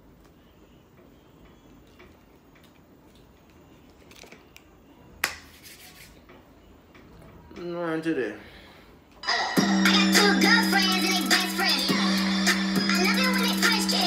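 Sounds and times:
finger snap: 0:05.2 - 0:05.5.

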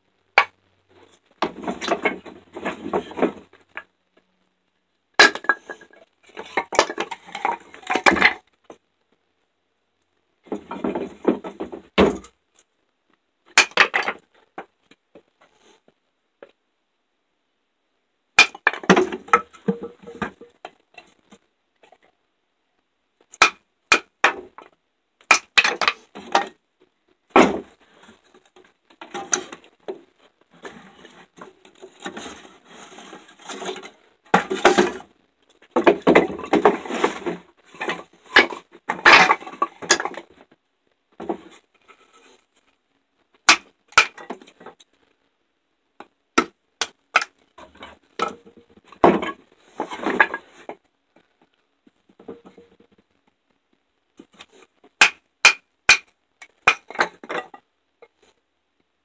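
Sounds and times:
wood cracking: 0:05.2 - 0:08.4, 0:13.6 - 0:14.7, 0:18.4 - 0:21.4, 0:23.3 - 0:26.6, 0:30.6 - 0:40.4, 0:43.4 - 0:44.8, 0:54.3 - 0:57.6.

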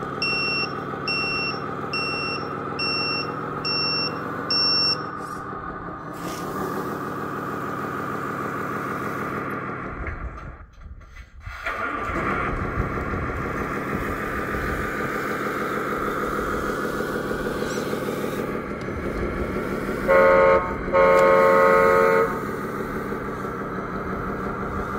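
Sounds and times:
simulated diesel truck engine: 0:00.0 - 0:24.9
truck horn: 0:20.0 - 0:22.6.

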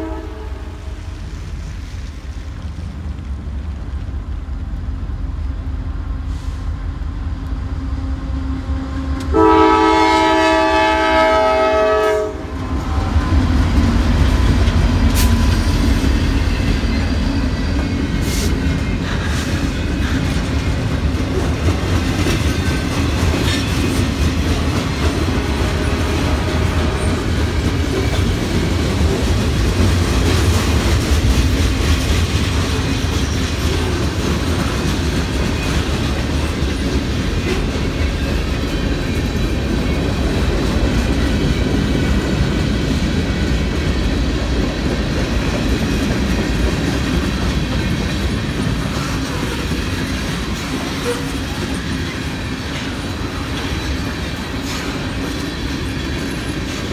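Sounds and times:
locomotive horn: 0:00.0 - 0:01.0, 0:09.2 - 0:13.2
freight train rumbling: 0:00.0 - 0:56.9.

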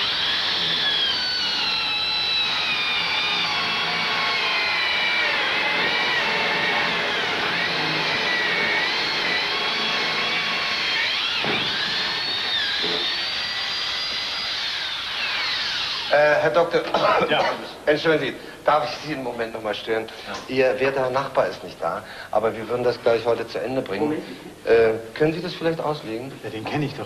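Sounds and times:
electric drill whining: 0:00.0 - 0:17.1.

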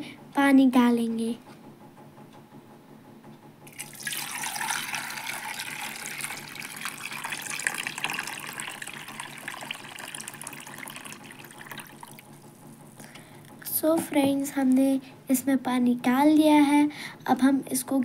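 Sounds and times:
water pouring into a pot: 0:03.7 - 0:12.4.

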